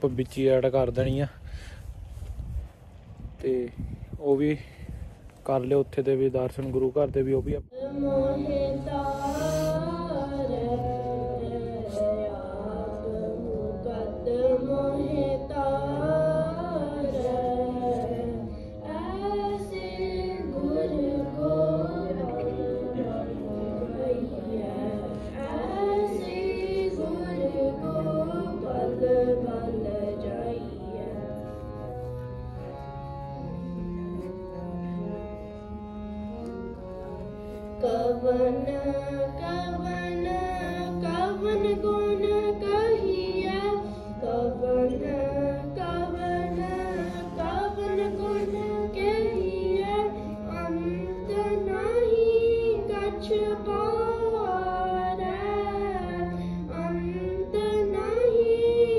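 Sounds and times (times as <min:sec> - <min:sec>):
devotional hymn singing: 0:07.7 - 0:58.9
held drone accompaniment: 0:07.9 - 0:58.9.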